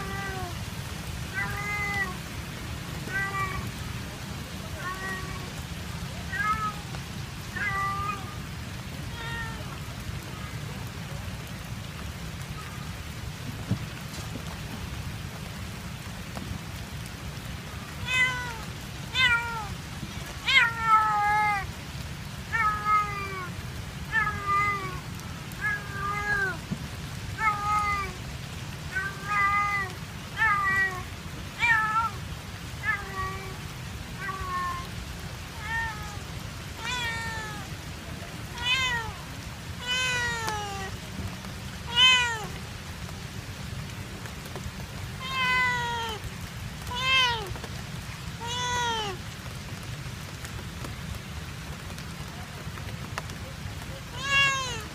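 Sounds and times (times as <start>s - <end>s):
cat meowing: 0.0s - 0.5s, 1.3s - 2.2s, 3.0s - 3.7s, 4.8s - 5.6s, 6.3s - 8.4s, 9.1s - 9.8s, 18.0s - 19.8s, 20.4s - 21.7s, 22.5s - 26.6s, 27.4s - 28.2s, 28.9s - 32.2s, 32.8s - 33.6s, 34.2s - 34.9s, 35.6s - 36.2s, 36.8s - 37.7s, 38.5s - 39.2s, 39.8s - 41.0s, 41.9s - 42.6s, 45.2s - 46.2s, 46.8s - 47.6s, 48.4s - 49.2s, 54.1s - 54.9s
steady rain: 0.0s - 54.9s.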